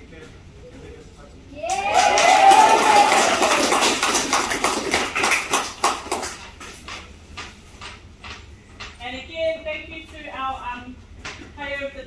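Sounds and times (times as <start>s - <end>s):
people clapping: 1.6s - 8.0s.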